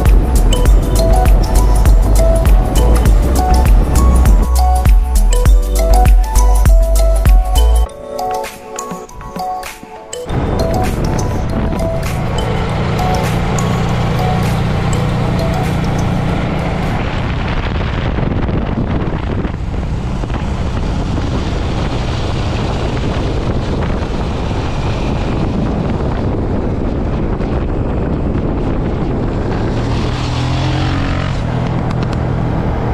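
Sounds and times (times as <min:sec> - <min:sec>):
motorcycle engine running: 0:00.0 - 0:05.4, 0:10.3 - 0:29.8
wind noise on microphone: 0:00.0 - 0:07.8, 0:10.3 - 0:32.9.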